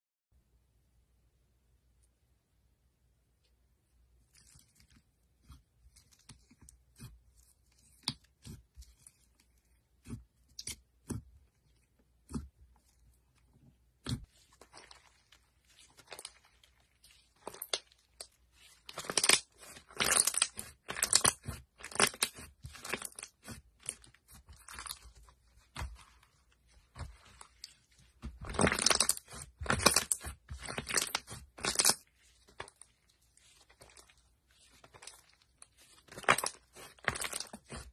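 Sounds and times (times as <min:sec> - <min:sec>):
hands squishing slime: 0:04.2 - 0:37.9
slime crackling and crunching: 0:14.0 - 0:37.9.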